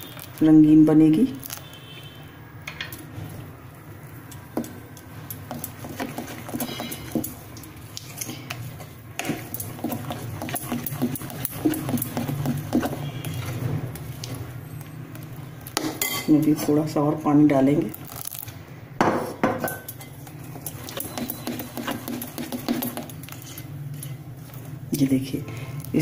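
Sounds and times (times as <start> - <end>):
spoon stirring batter in glass bowl: 4.3 - 16.7, 19.7 - 24.8.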